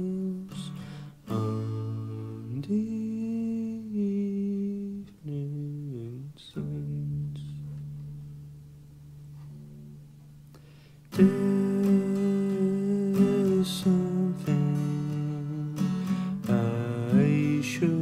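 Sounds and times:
instrumental music with acoustic guitar: 0.0s - 18.0s.

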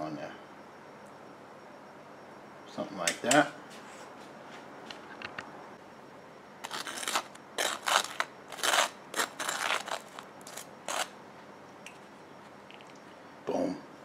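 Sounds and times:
burger crunching scrapes: 6.6s - 11.1s.

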